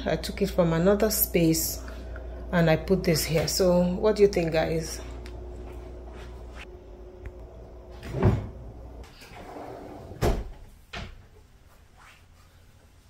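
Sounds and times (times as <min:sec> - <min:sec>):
drawer sliding on runners: 0:08.0 - 0:10.4.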